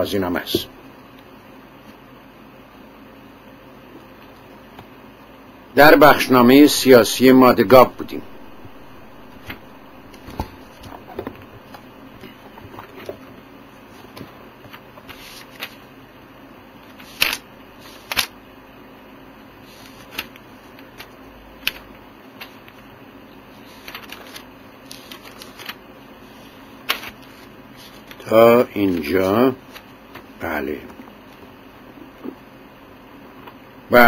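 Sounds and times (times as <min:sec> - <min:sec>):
paper pages rustling: 0:08.3 - 0:13.2, 0:13.9 - 0:15.9, 0:16.8 - 0:18.3, 0:19.6 - 0:22.8, 0:23.5 - 0:28.3, 0:29.1 - 0:30.3.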